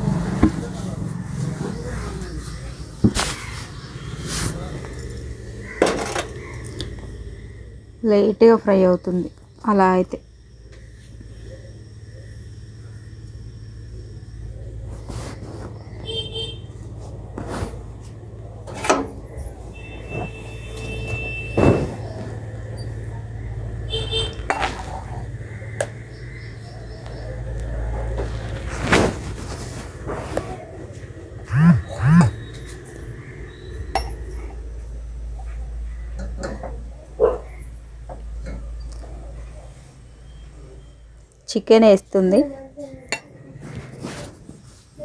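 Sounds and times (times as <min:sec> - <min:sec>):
steady low hum: 0:00.0 - 0:45.0
knocks and clunks: 0:20.2 - 0:22.5.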